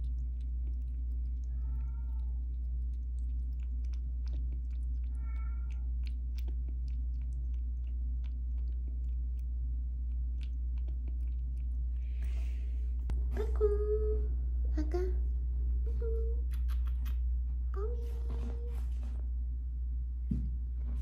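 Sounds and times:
kitten lapping water: 0:00.0 - 0:13.7
steady low hum: 0:00.0 - 0:21.0
kitten mewing: 0:01.3 - 0:02.4, 0:05.0 - 0:06.5.

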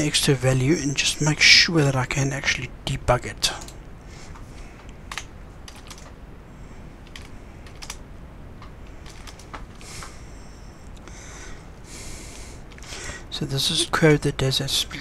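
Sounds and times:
computer keyboard keystroke clicks: 0:05.1 - 0:06.1, 0:07.1 - 0:08.0, 0:08.6 - 0:09.6.

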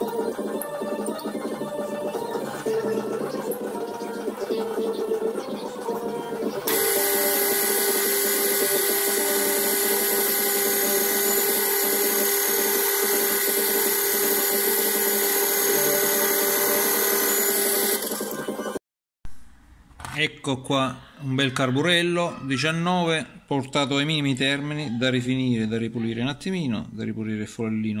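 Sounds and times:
metal lathe whining: 0:06.6 - 0:18.4.

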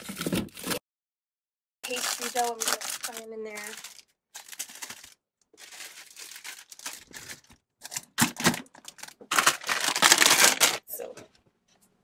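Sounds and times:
plastic packaging crinkling: 0:01.8 - 0:10.9.

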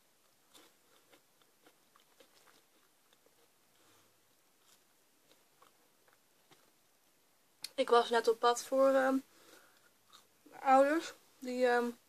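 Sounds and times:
chewing fries: 0:00.0 - 0:07.0, 0:09.4 - 0:10.4.

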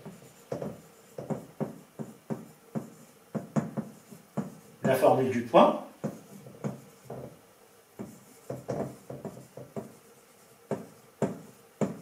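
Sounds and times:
marker squeaking on whiteboard: 0:00.0 - 0:05.0, 0:08.0 - 0:12.0.

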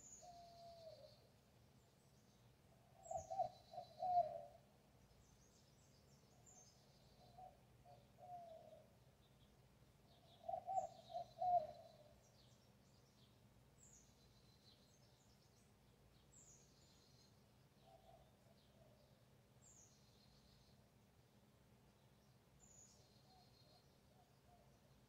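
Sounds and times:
small birds chirping: 0:00.0 - 0:25.0
dove cooing: 0:02.8 - 0:04.6, 0:07.2 - 0:08.9, 0:10.3 - 0:12.2.

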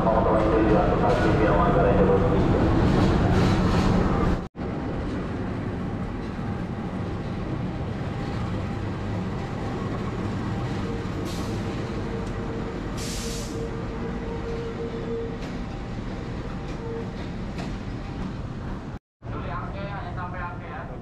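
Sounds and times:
locomotive engine and wheels rumbling: 0:00.0 - 0:21.0
short air hisses: 0:13.0 - 0:13.6.

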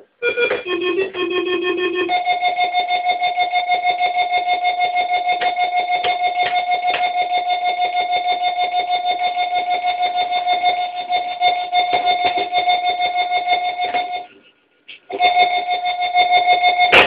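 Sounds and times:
synthesizer pulsing high note: 0:00.0 - 0:05.3.

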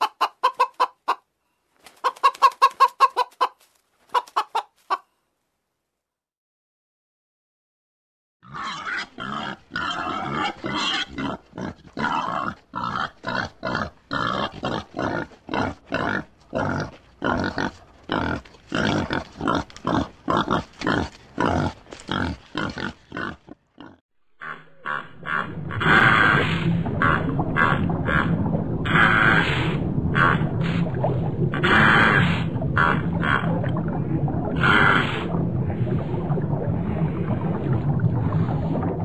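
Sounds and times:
pigs grunting: 0:08.4 - 0:28.3.

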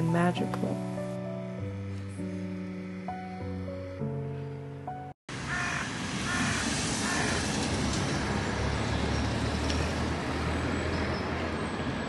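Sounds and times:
distant traffic rumble: 0:05.3 - 0:12.0.

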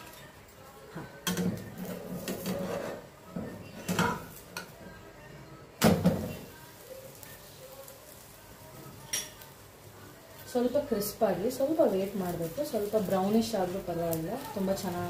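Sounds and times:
spatula scraping frying pan: 0:01.7 - 0:03.2.

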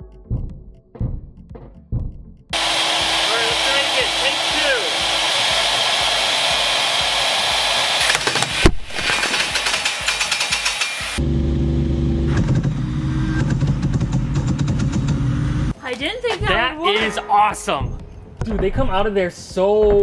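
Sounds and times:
table saw running: 0:02.6 - 0:13.8
rapid sharp cracks: 0:08.0 - 0:11.0
loud bang: 0:16.9 - 0:18.1.

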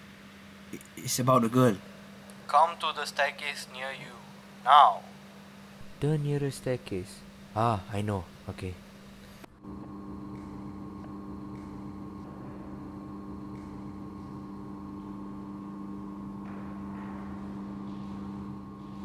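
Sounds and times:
electrical hum: 0:00.0 - 0:19.0.

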